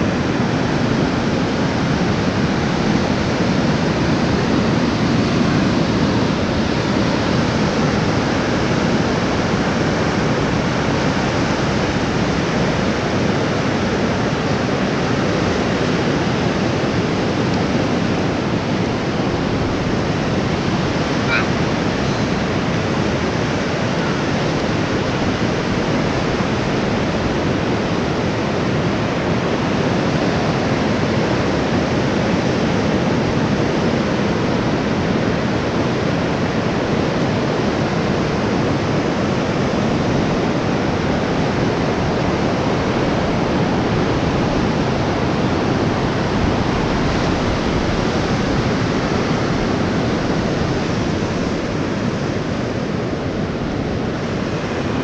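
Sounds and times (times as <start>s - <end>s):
surf breaking on beach: 0.0s - 55.0s
wind on microphone: 0.0s - 55.0s.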